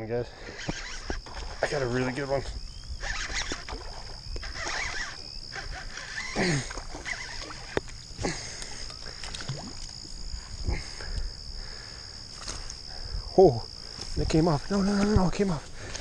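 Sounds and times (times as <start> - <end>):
high insect drone: 0.0 - 16.0
fishing reel cranking and clicking: 0.6 - 2.1, 3.0 - 9.9.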